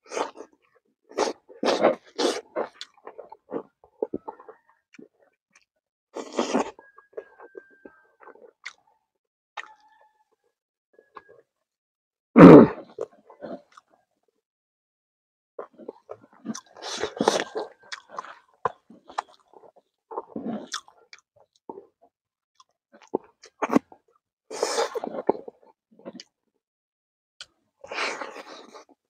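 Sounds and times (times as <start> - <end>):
man chewing with wet smacking: 1.1 - 8.9, 15.6 - 21.6.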